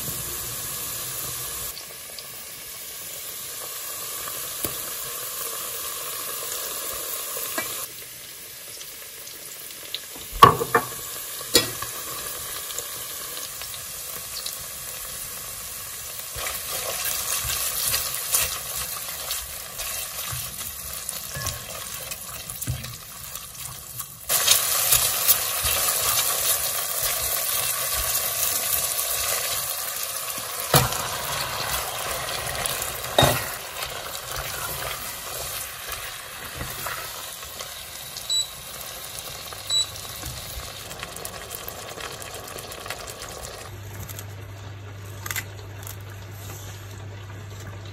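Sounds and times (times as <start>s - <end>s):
food sizzling in a pot: 0.0s - 43.8s
spatula stirring and scraping: 16.4s - 22.9s, 31.7s - 37.1s.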